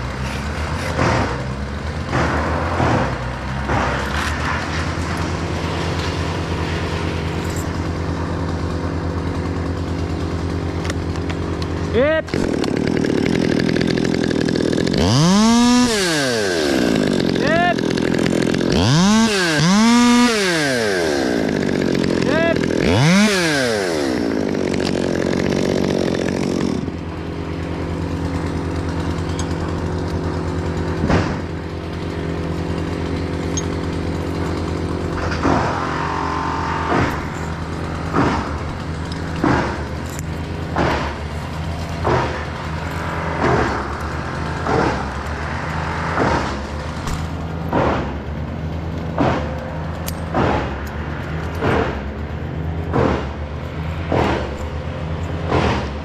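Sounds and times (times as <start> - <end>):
chainsaw idling: 0.0 - 56.0
sharp knocks: 31.0 - 31.5, 38.1 - 38.6, 39.3 - 39.9, 40.7 - 41.2, 42.0 - 42.4, 43.4 - 43.8, 46.1 - 48.2, 49.2 - 49.6, 50.2 - 50.8, 55.4 - 56.0.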